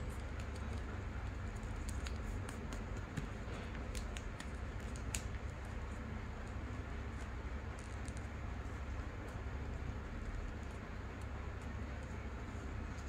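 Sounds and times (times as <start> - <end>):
steady low hum: 0.0 - 13.0
paper crackling as folded: 0.1 - 8.8.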